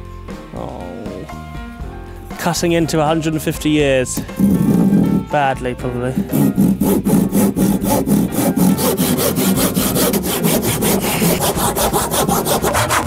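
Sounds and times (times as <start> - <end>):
handsaw cutting wood: 4.2 - 5.4, 6.1 - 13.0.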